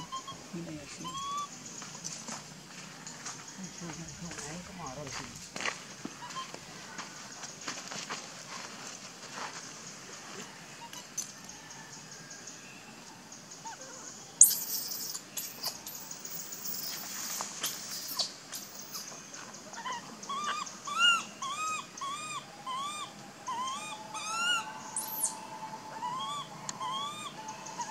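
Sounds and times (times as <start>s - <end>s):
baby monkey whimpering calls: 0.0s - 1.5s, 17.6s - 19.1s, 19.8s - 27.9s
baby monkey shrieks: 1.0s - 1.5s, 14.4s - 16.0s, 16.7s - 19.1s, 19.8s - 25.4s, 26.0s - 27.9s.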